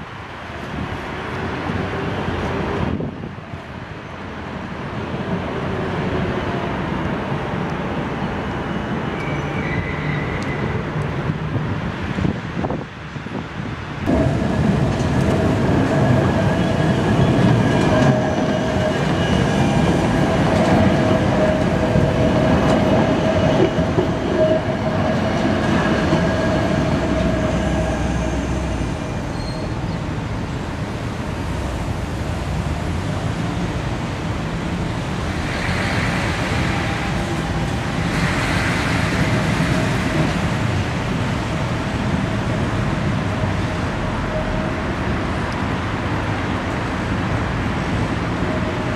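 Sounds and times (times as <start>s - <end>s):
tram running on track: 0.0s - 48.9s
hiss: 35.3s - 37.3s, 37.9s - 40.1s.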